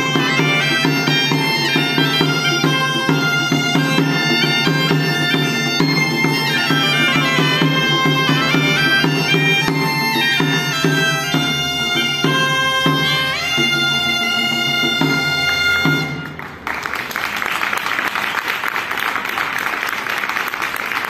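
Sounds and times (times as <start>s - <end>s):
bagpipes playing: 0.0s - 16.4s
small drum beating: 0.0s - 16.4s
audience applause: 16.2s - 21.0s.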